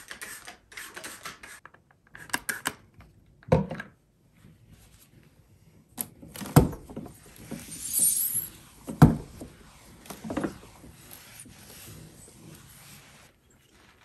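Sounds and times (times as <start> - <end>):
cloth wiping glass mirror: 7.2 - 14.0
short hissing rub: 9.6 - 14.0.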